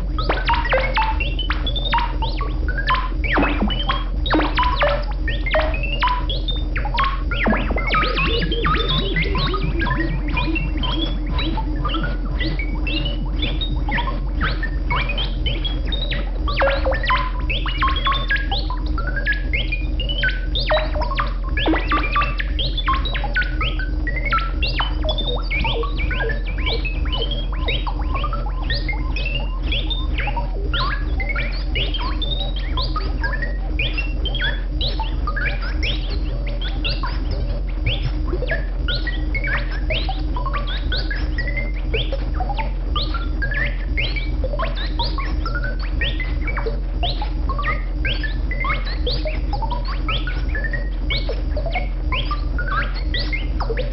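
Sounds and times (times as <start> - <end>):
low synth drone: 2.1 - 17.5, 21.6 - 22.6
synthesizer chirping pitch sweeps: 2.8 - 18.5, 20.2 - 23.6.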